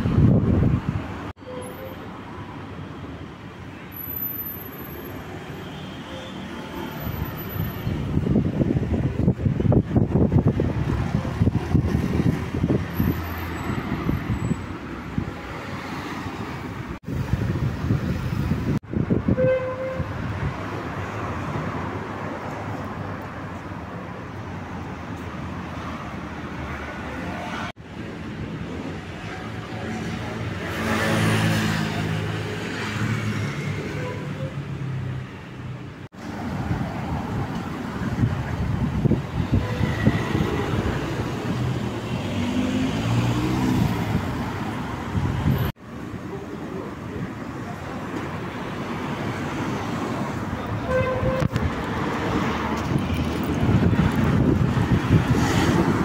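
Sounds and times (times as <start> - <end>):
wind buffeting microphone: 0.0 - 1.3, 7.8 - 15.4, 17.0 - 21.8, 36.5 - 42.3, 43.4 - 45.8, 50.3 - 56.0
city street traffic: 0.0 - 56.0
car horn toot: 19.3 - 20.1, 50.8 - 51.6.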